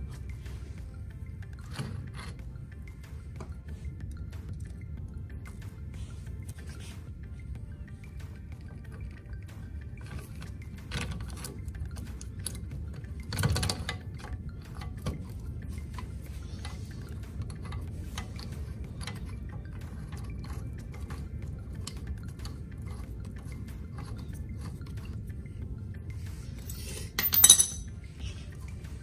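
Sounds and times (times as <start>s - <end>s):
light metallic clicks and clinks: 0.0s - 29.0s
low steady hum: 0.0s - 29.0s.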